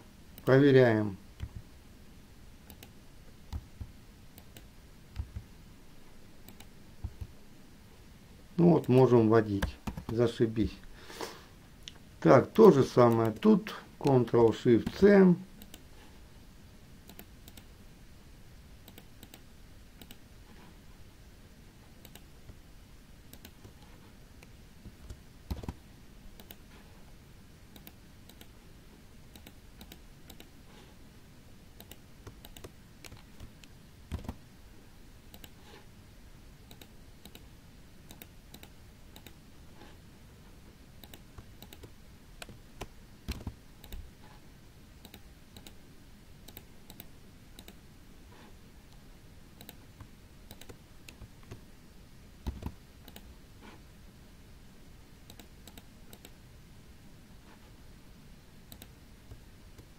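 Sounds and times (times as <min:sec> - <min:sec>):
mouse buttons clicking: 0:02.7 - 0:05.5, 0:06.4 - 0:07.3, 0:18.9 - 0:19.4, 0:20.0 - 0:20.2, 0:22.0 - 0:22.3, 0:29.3 - 0:30.5, 0:31.8 - 0:34.4, 0:35.3 - 0:35.6, 0:36.7 - 0:37.5, 0:38.1 - 0:39.4, 0:41.0 - 0:44.1, 0:49.6 - 0:51.6, 0:58.7 - 0:59.9
keyboard keys clicking: 0:31.8 - 0:34.4.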